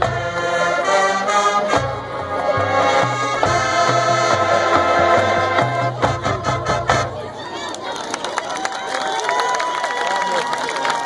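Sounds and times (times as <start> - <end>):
marching band playing chords: 0.0 - 7.5.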